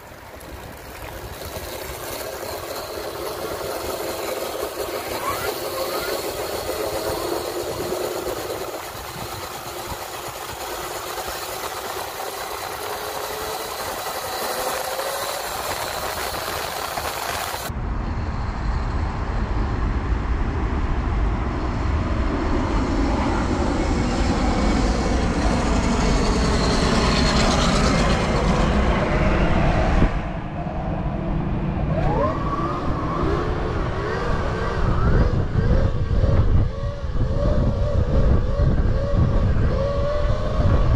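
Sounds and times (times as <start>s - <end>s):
electric dirt bike motors whining: 0.0s - 17.7s, 31.8s - 40.9s
wind and riding noise: 0.0s - 40.9s.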